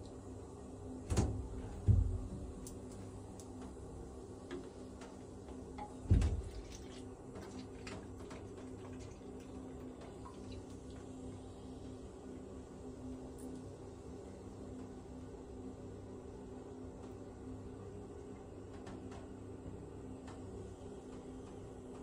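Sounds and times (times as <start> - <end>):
steady low hum: 0.0 - 22.0
dull thumps: 1.1 - 2.6
cola pouring and fizzing: 6.3 - 12.1.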